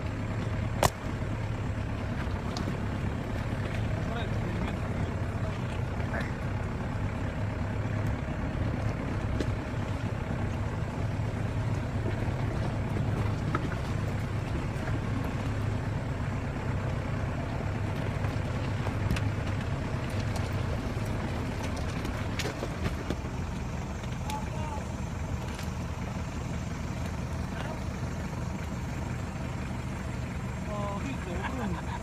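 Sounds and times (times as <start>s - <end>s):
diesel engine running steadily: 0.0s - 32.0s
knocks and rattles from rocks: 18.0s - 23.3s.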